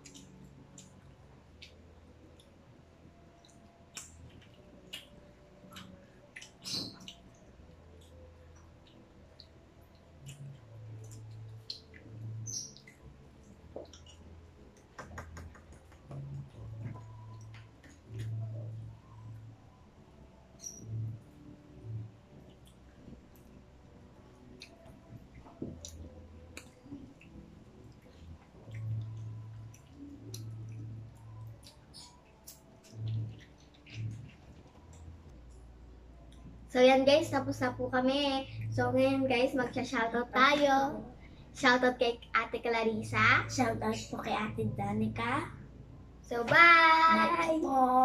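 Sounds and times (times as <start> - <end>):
wet mouth clicks and smacks: 0.0 - 2.6, 3.4 - 19.2, 24.3 - 35.6
chewing food: 0.0 - 19.4, 20.6 - 36.7.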